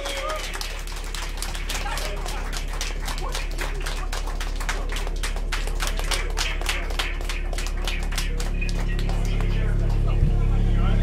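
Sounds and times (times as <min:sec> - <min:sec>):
low electronic drone: 0:00.0 - 0:11.0
deep bass tone: 0:08.3 - 0:11.0.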